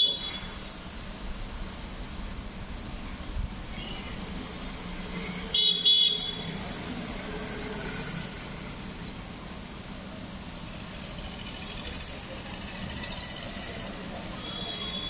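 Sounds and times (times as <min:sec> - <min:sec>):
vehicle horn honking: 0:05.5 - 0:06.5, 0:14.4 - 0:15.0.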